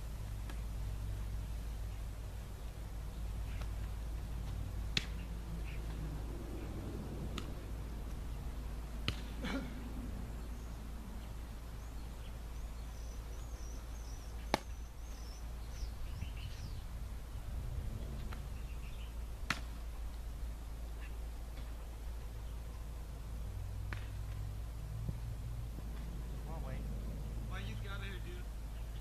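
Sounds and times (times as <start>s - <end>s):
steady low rumble: 0.0s - 29.0s
football smacking into hands: 9.0s - 9.3s, 14.5s - 14.7s
faint bird chirps: 10.4s - 17.4s.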